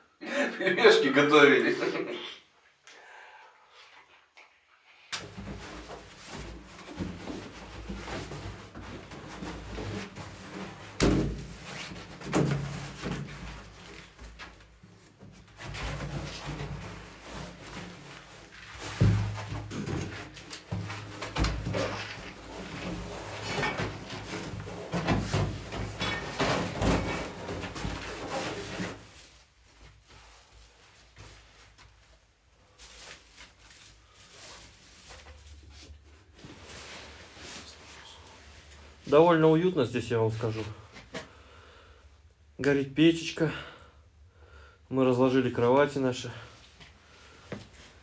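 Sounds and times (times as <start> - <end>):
knocks and thuds: 10.9 - 13.4.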